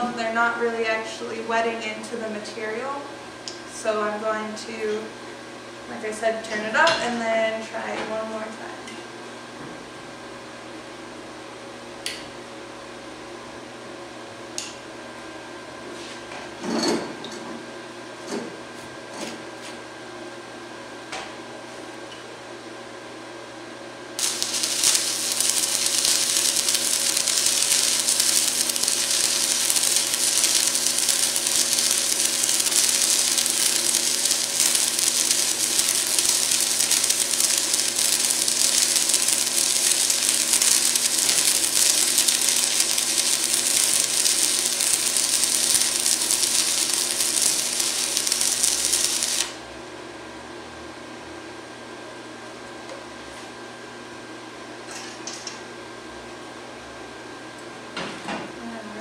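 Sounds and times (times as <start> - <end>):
shop hum: 0.0 - 59.0
welding arc crackling hiss: 24.2 - 49.7.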